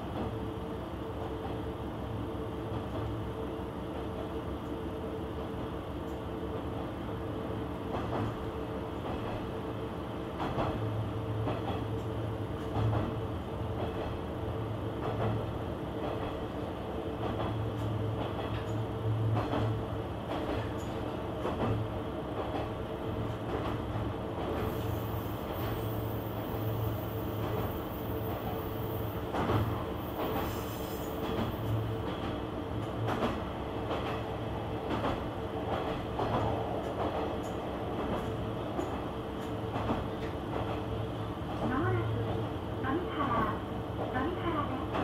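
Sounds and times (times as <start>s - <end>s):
track knocks: 31.2s - 40.8s.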